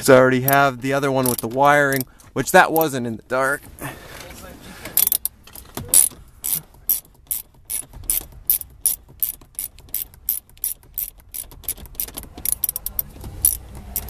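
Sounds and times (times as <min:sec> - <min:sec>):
ratchet wrench clicking: 0:00.4 - 0:02.1, 0:05.0 - 0:14.0.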